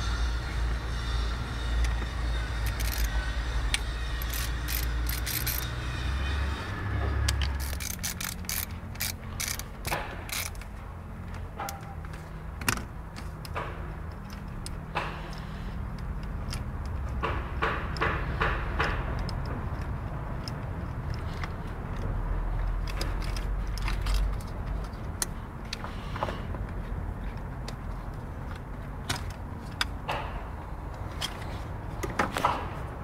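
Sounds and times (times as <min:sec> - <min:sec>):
hand ratchet clicking: 0:02.6 - 0:05.8, 0:07.2 - 0:12.2, 0:13.1 - 0:25.9.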